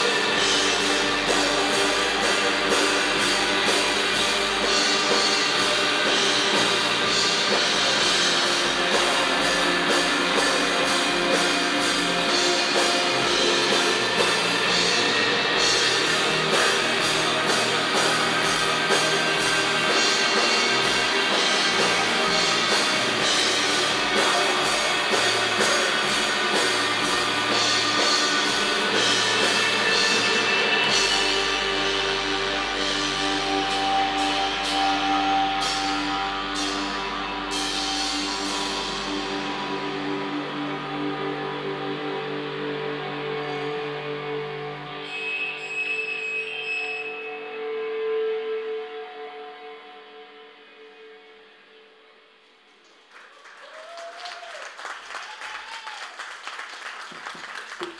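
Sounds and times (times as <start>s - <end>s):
drum kit beat: 0.0s - 40.2s
electric guitars: 0.0s - 45.8s.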